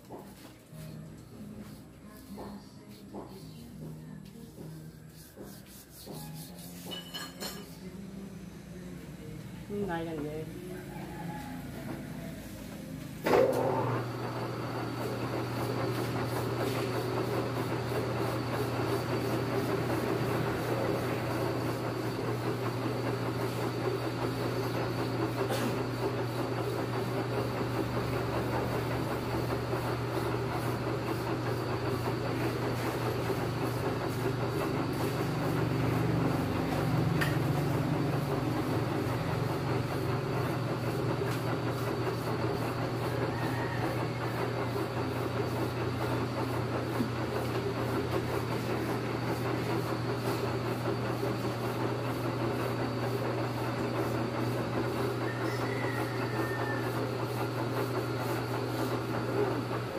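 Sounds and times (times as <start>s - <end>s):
lathe machine hum and rumble: 0.0s - 59.9s
lathe starting clunk: 12.8s - 14.8s.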